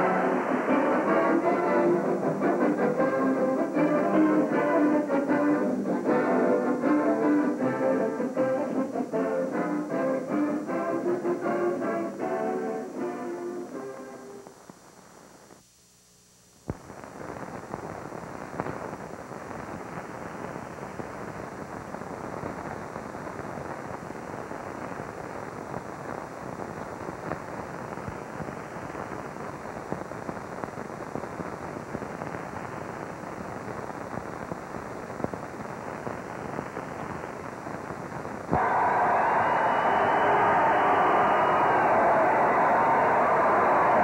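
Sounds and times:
film soundtrack crackling hiss: 0.0 - 44.0.

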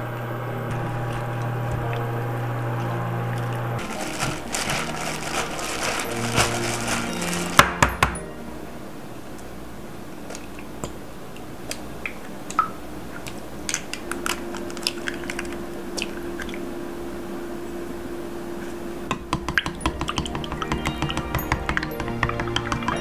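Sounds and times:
eggs cracking into bowl: 13.2 - 16.1.

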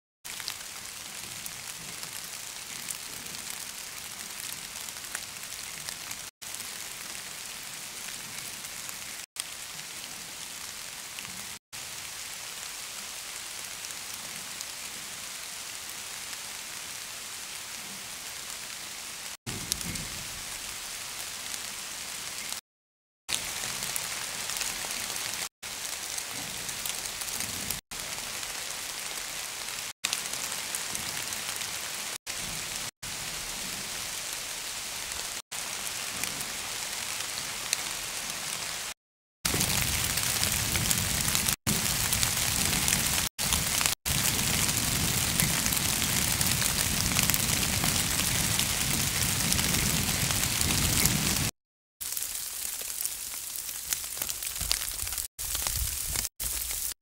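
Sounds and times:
rain hissing: 23.3 - 57.0.

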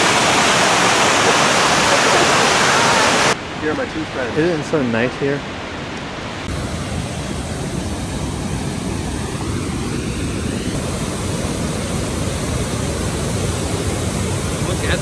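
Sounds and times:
waterfall rushing over rocks: 0.0 - 3.5, 10.2 - 15.0.

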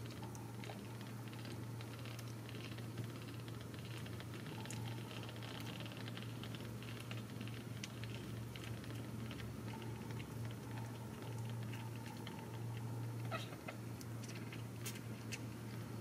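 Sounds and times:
low steady hum: 0.0 - 16.0.

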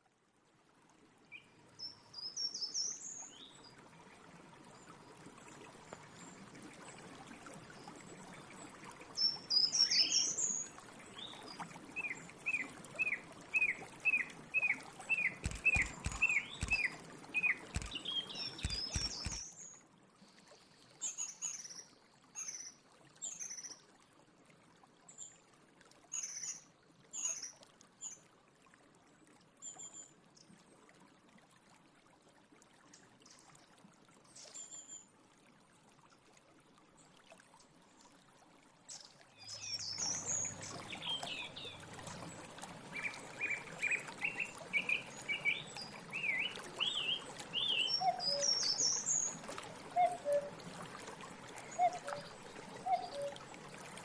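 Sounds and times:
song thrush singing: 12.0 - 19.8, 42.9 - 49.4
faint clicks: 15.1 - 19.8.

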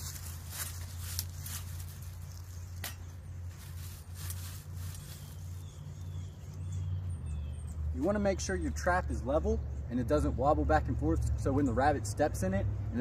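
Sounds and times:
dry leaves rustling and crackling: 0.0 - 6.2.

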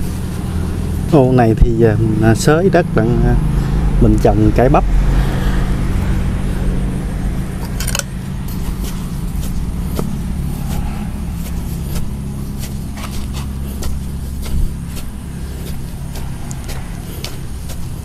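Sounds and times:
low engine-like drone: 0.0 - 18.0
hand hoe scraping soil: 7.7 - 18.0.

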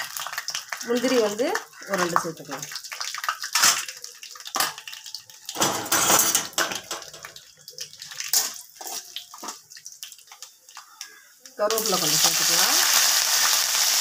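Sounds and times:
food sizzling in hot oil: 0.0 - 14.0
spoon scraping against pan: 8.3 - 9.6.

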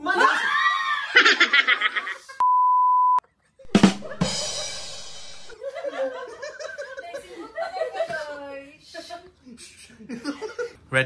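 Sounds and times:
group laughter: 0.0 - 2.4, 3.3 - 8.4, 9.8 - 10.8
high censor bleep: 2.4 - 3.2
drum rimshot sting: 3.7 - 5.5.

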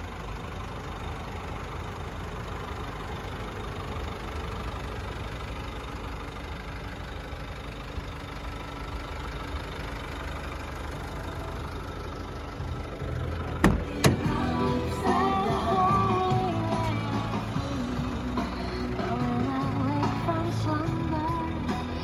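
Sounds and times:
diesel engine idling: 0.0 - 22.0
car door unlatching clacks: 13.4 - 14.3.

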